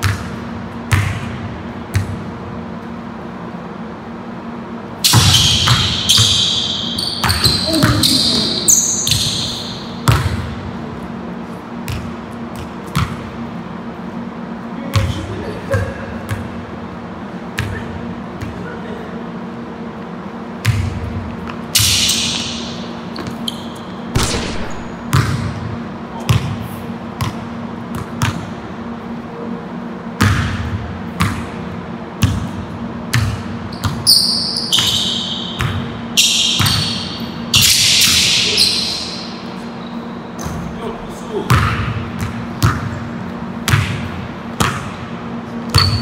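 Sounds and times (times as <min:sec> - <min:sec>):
steady low hum: 0:00.0 - 0:34.1, 0:34.8 - 0:46.0
sneakers squeaking: 0:05.0 - 0:13.6, 0:20.4 - 0:28.7, 0:30.2 - 0:46.0
basketball bouncing on wooden floor: 0:05.1 - 0:06.5, 0:07.2 - 0:08.4, 0:10.0 - 0:10.5, 0:24.2 - 0:25.6.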